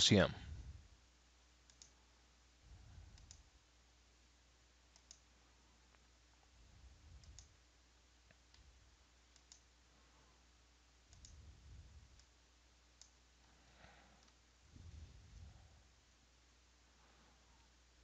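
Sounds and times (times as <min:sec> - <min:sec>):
soft low rumbles: 0:00.0 - 0:01.1, 0:02.3 - 0:04.1, 0:05.4 - 0:09.1, 0:09.8 - 0:18.0
computer mouse clicks: 0:01.6 - 0:02.0, 0:03.1 - 0:03.5, 0:04.9 - 0:05.3, 0:07.1 - 0:07.6, 0:08.3 - 0:08.7, 0:09.3 - 0:09.7, 0:11.1 - 0:12.4, 0:13.0 - 0:13.2, 0:14.2 - 0:14.4.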